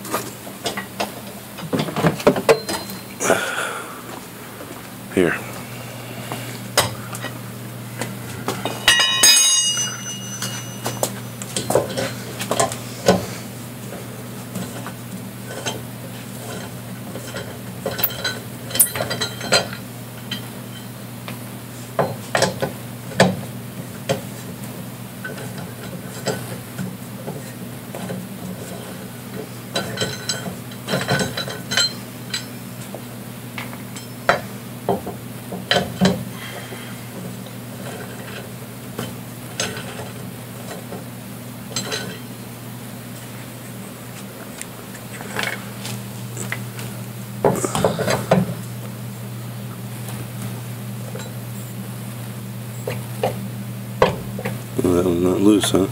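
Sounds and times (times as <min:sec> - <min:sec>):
steady low hum: 0:00.0 - 0:55.9
lug wrench clinking on nuts: 0:02.4 - 0:03.1, 0:08.8 - 0:12.1.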